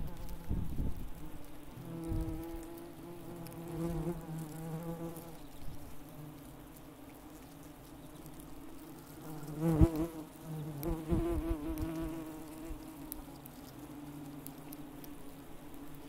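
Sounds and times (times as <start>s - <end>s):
bees buzzing: 0.0s - 16.0s
wing buzz passing close: 9.0s - 13.2s.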